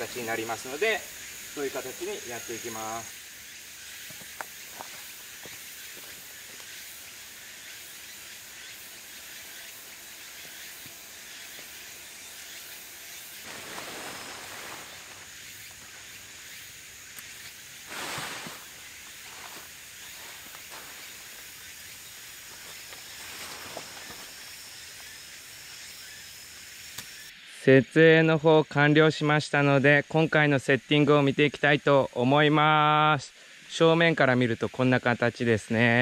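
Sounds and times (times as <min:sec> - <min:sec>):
high outdoor hiss: 0:00.0 - 0:36.0
tent canvas rustling: 0:13.4 - 0:16.3, 0:17.8 - 0:21.4.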